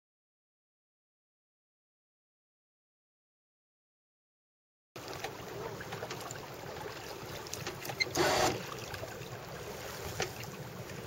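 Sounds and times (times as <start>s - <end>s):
water noise: 5.0s - 11.0s.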